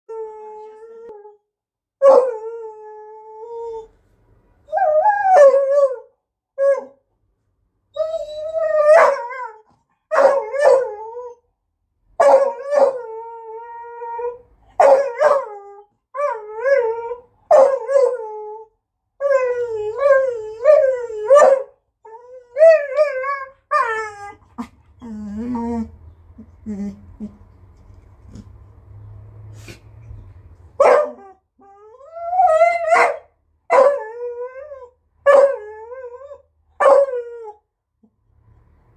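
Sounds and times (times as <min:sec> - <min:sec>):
dog whining and howling: 0:00.1 - 0:01.4, 0:02.0 - 0:03.9, 0:04.7 - 0:07.0, 0:07.9 - 0:11.4, 0:12.2 - 0:27.4, 0:30.8 - 0:37.6.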